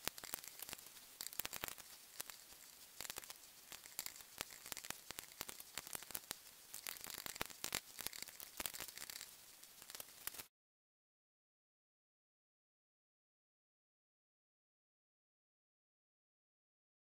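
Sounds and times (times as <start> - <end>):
pen scratching on metal: 0.0 - 10.5.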